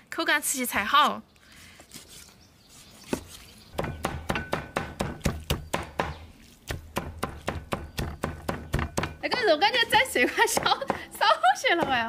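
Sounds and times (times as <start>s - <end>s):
knife chopping meat on cutting board: 3.8s - 10.0s.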